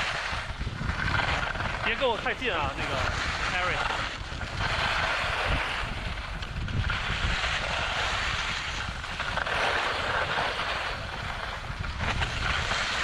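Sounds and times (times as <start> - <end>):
wind rushing over microphone: 0.0 - 13.0
skis hissing on snow: 1.8 - 6.1, 6.8 - 8.9.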